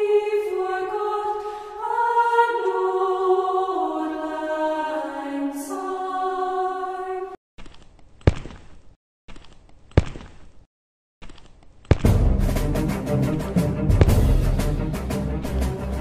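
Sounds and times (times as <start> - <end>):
slow choral music: 0.0 - 7.4, 12.3 - 16.0.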